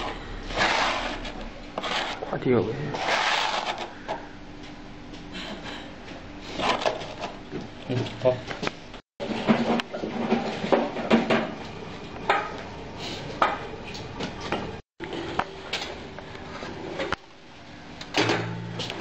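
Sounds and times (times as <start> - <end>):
plastic scraper rasping: 3.0 - 4.0.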